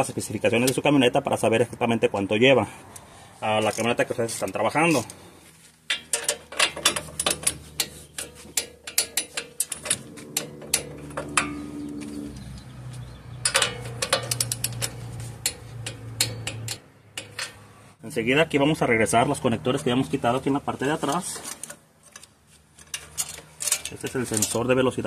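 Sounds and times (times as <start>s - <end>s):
hand ratchet clicking: 5.9s - 11.6s.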